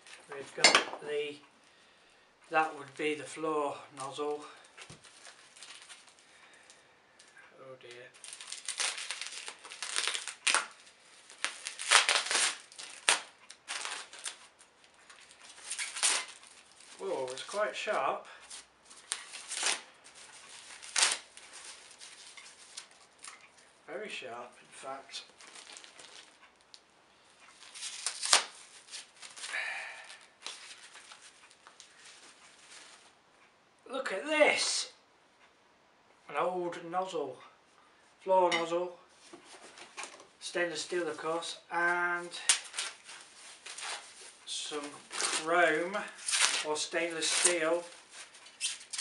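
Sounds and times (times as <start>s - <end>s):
packing material rustling: 4.0s - 23.7s, 24.8s - 26.8s, 27.4s - 33.2s, 40.8s - 49.0s.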